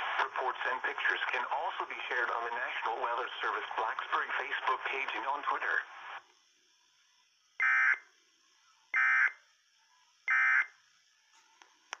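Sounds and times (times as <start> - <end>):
faint click: 11.6 - 12.0.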